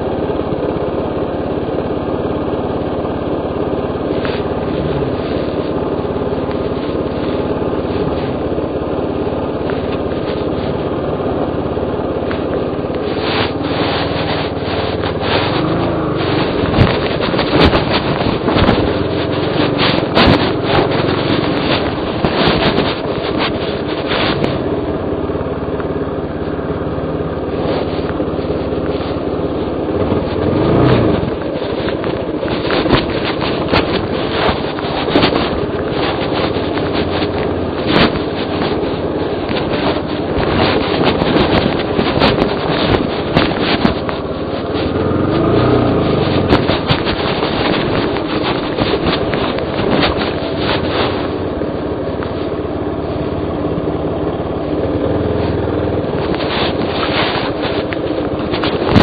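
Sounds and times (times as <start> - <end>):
dirt bike engine running: 0.0 - 59.0
bike knocking over rocks: 30.0 - 51.4, 56.2 - 59.0.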